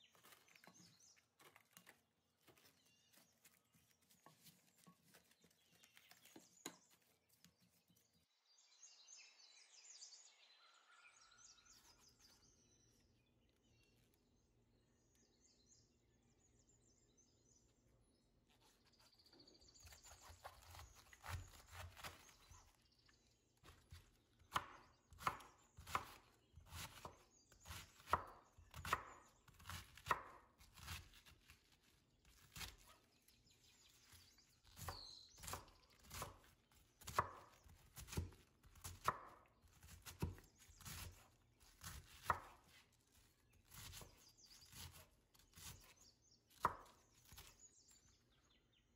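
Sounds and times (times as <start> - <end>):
knife slicing cabbage: 18.6 - 22.8, 23.6 - 47.6.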